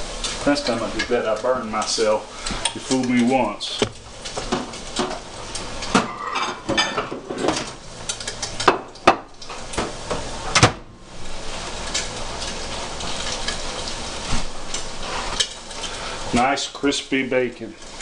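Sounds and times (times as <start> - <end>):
bacon sizzling in a skillet: 0.0 - 18.0
microwave door shutting: 10.5 - 10.9.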